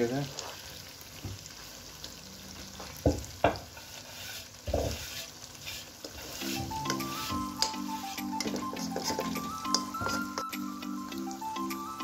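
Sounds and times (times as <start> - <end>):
curry sizzling in a wok: 0.0 - 12.0.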